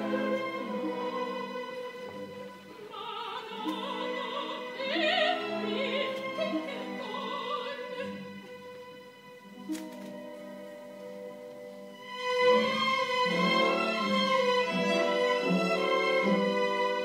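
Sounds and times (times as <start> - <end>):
opera singing with vibrato: 0.0 - 2.1, 2.8 - 8.4
orchestral chords: 0.0 - 17.0.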